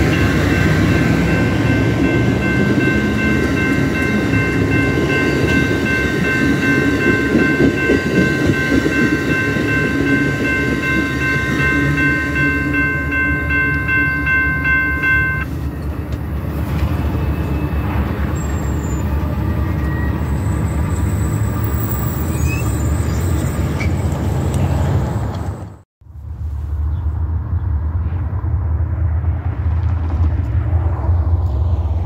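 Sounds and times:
crossing warning bells ringing: 0.0 - 23.8
train rumbling: 0.0 - 32.0.

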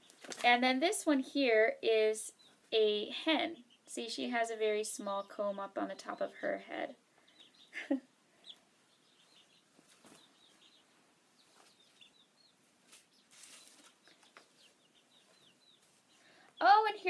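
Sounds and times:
chicken chirping: 5.0 - 17.0
feathers rustling: 12.7 - 16.1.

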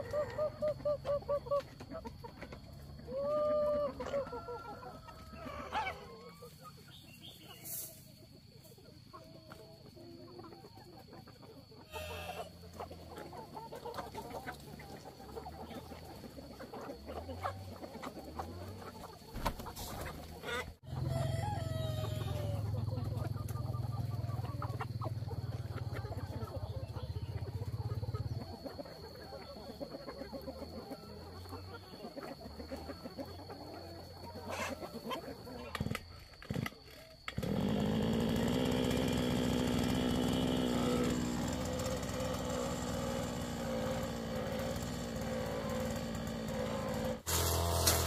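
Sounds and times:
chickens clucking: 0.0 - 48.0
rooster crowing: 3.1 - 6.3, 20.8 - 22.9.

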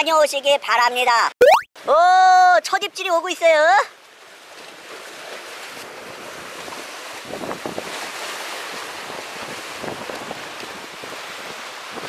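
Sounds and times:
surf washing against breakwater: 4.1 - 12.0
wind buffeting microphone: 7.2 - 8.0, 9.0 - 12.0.

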